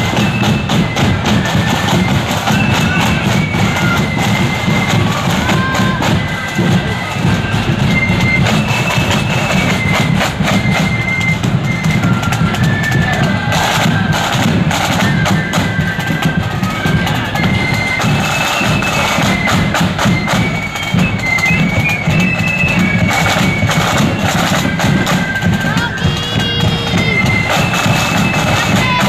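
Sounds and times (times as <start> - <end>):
flutes playing melody: 0.0 - 29.0
rapid snare drumming: 0.0 - 29.0
bass drum beat: 25.6 - 29.0.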